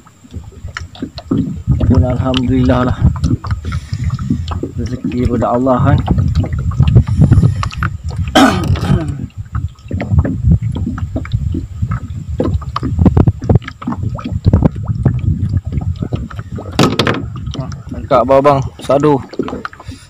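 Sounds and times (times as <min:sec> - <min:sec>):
low irregular rumble: 0:00.0 - 0:20.0
water slapping against boat hull: 0:00.0 - 0:20.0
short knocks: 0:16.6 - 0:17.6.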